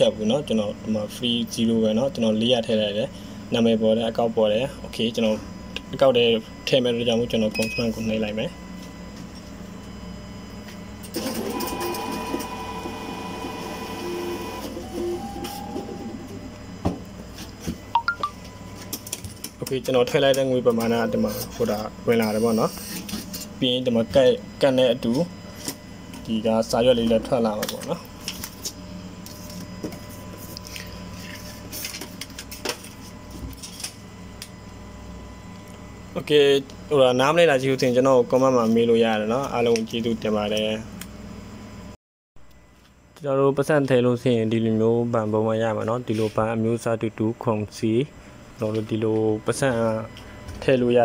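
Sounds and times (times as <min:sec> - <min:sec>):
atm mechanism whirring and whining: 0:00.0 - 0:35.3
machine hum: 0:00.0 - 0:42.9.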